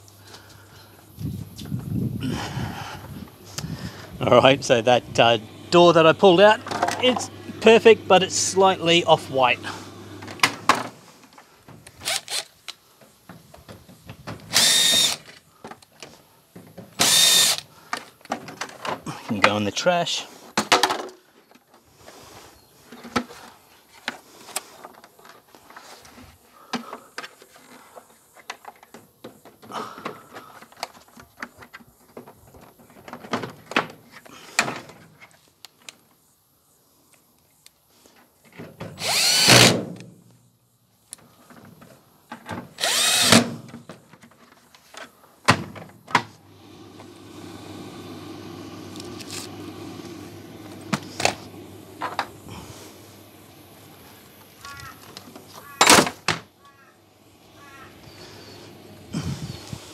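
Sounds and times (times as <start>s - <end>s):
steady low hum: 0.0s - 10.8s, 46.4s - 55.6s
power drill running: 4.8s - 10.6s, 12.0s - 12.5s, 14.5s - 15.3s, 17.0s - 17.7s, 39.0s - 39.8s, 42.8s - 43.5s, 46.4s - 54.2s
parts clicking and knocking: 6.6s - 7.3s.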